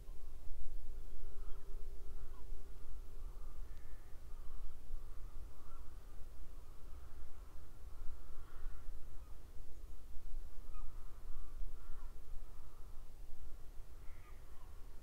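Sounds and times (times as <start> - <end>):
crows cawing: 3.2 - 6.0, 8.1 - 9.3, 11.1 - 13.0.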